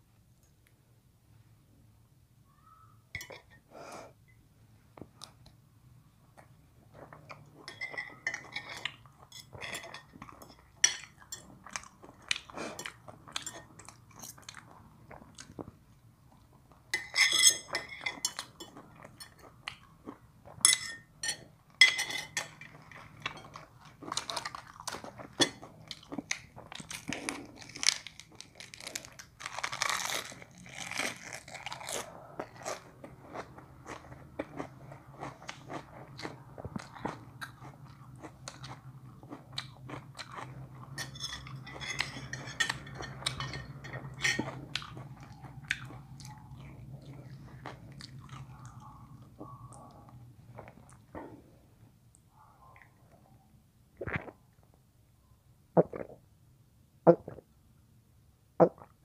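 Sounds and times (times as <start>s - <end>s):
chewing and crunching food: 6.3s - 53.3s
cutlery clinking on plates: 7.6s - 11.5s, 17.0s - 19.6s, 20.6s - 23.6s, 40.9s - 44.6s.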